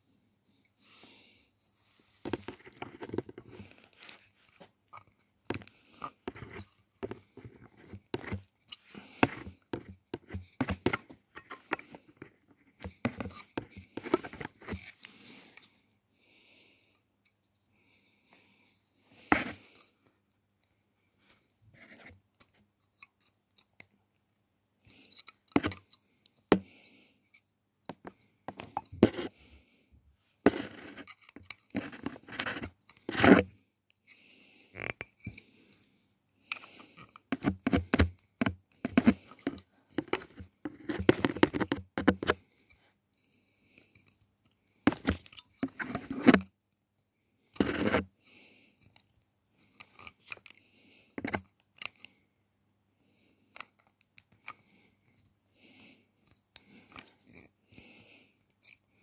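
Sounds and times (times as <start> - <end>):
pliers scraping and crunching wire: 5.6 - 15.0, 25.0 - 26.6, 30.5 - 33.5, 36.5 - 42.4, 44.9 - 46.5, 47.6 - 48.1, 49.8 - 50.6.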